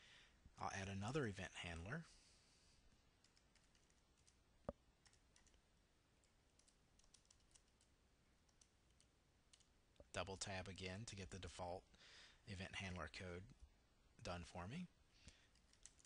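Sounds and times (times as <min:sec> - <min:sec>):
keyboard typing: 0:03.2 - 0:04.4, 0:05.0 - 0:05.6, 0:06.2 - 0:09.7, 0:15.3 - 0:16.0.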